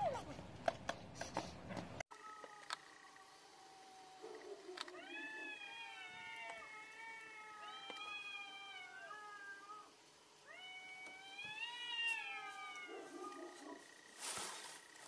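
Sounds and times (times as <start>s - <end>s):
cats caterwauling: 2.1s - 13.9s.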